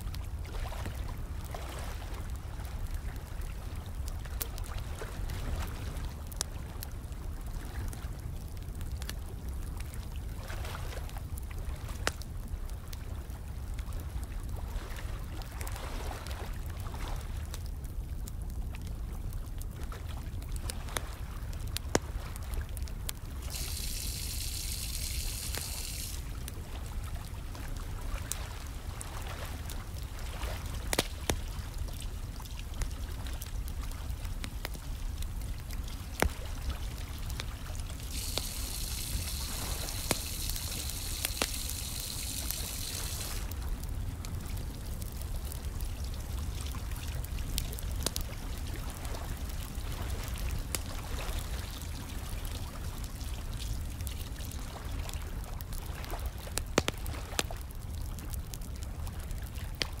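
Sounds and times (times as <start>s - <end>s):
wood fire crackling and popping: 6.2s - 10.3s, 11.1s - 14.0s, 17.4s - 29.0s, 29.6s - 60.0s
trickling water: 19.7s - 60.0s
bright hiss: 23.5s - 26.3s, 38.0s - 43.5s.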